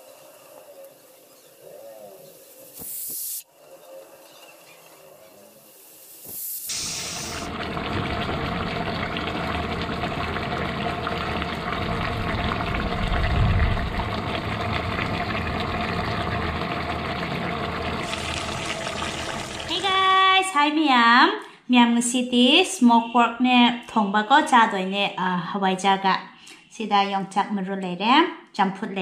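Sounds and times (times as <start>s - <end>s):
curry bubbling and sizzling: 0.0s - 20.0s
pressure cooker steam hiss: 2.2s - 3.5s, 4.3s - 7.5s.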